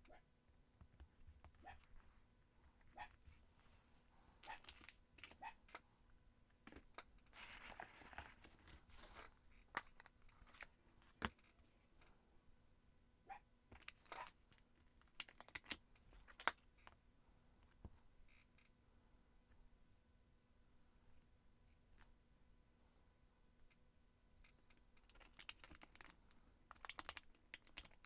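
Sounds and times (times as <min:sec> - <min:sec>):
plastic rustle of stamps: 0:25.0 - 0:28.0.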